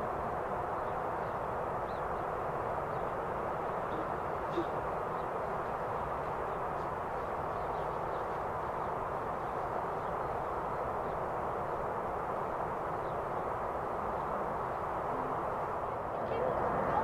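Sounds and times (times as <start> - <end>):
faint bird chirps: 3.8 - 6.8.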